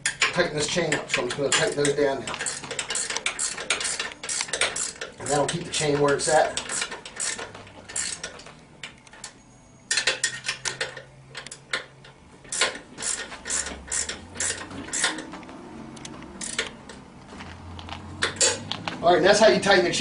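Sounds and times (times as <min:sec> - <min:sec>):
wrench clicking on metal: 0:00.0 - 0:08.3, 0:12.5 - 0:15.2, 0:16.0 - 0:17.0, 0:17.8 - 0:18.7.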